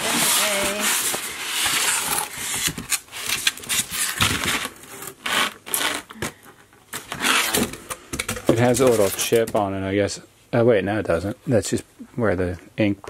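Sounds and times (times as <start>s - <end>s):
cardboard packaging rustling: 0.0s - 9.6s.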